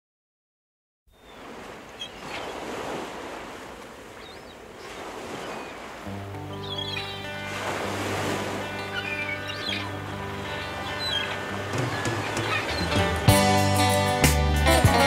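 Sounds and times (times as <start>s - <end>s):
music with low notes: 6.2s - 15.0s
high bird chirps: 6.5s - 7.3s, 8.8s - 13.0s.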